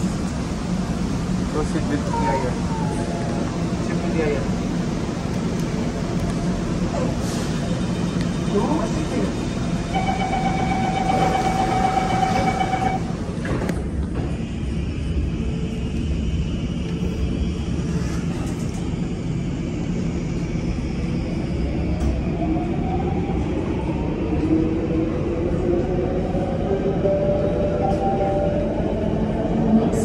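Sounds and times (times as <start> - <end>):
electric train rumbling: 0.0 - 30.0
train whine rising in pitch: 9.8 - 13.3.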